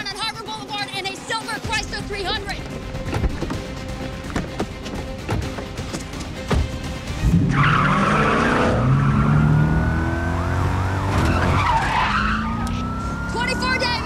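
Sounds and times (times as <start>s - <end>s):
car door shutting: 3.0s - 6.8s
car engine revving: 5.6s - 14.0s
tires squealing on pavement: 7.2s - 14.0s.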